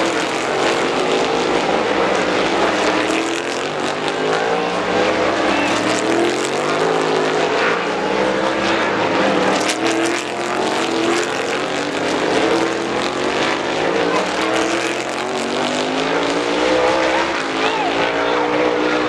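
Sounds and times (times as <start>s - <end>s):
race car engines at high revs: 0.0s - 19.0s.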